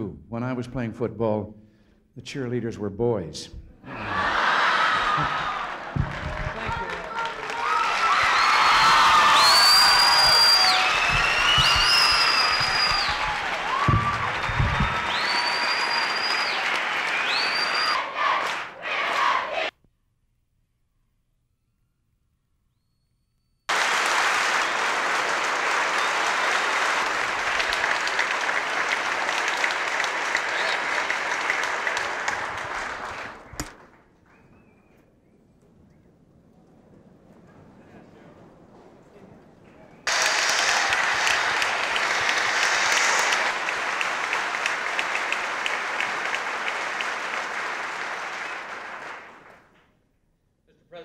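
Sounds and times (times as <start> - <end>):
audience applauding: 3.9 - 19.7, 23.7 - 34.5, 40.0 - 49.8.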